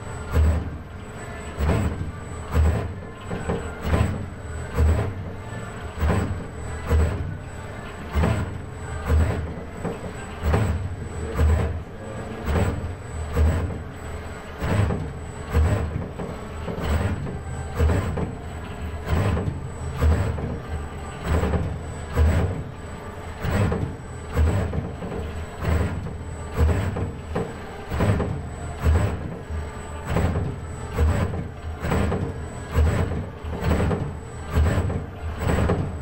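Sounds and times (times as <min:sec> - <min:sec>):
robot arm servo motors whining: 0:00.0 - 0:36.0.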